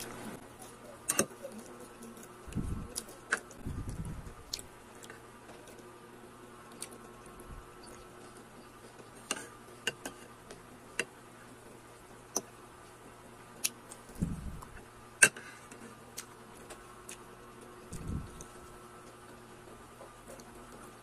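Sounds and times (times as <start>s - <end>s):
close chewing with mouth clicks: 1.4s - 5.8s, 6.7s - 9.0s.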